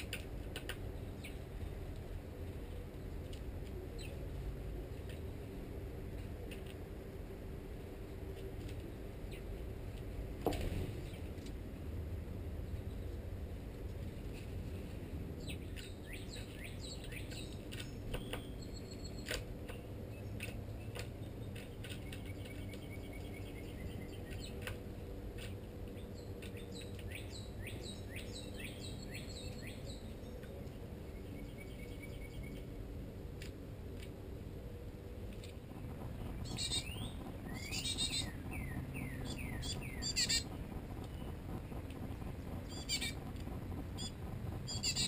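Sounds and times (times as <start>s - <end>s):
low background rumble: 0.0s - 45.0s
small songbirds chirping: 15.4s - 24.8s, 25.4s - 32.7s, 35.7s - 45.0s.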